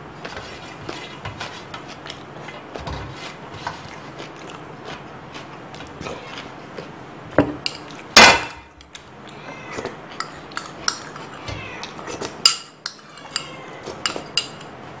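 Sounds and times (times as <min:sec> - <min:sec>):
knife scraping bowl: 0:00.2 - 0:04.3, 0:09.7 - 0:14.7.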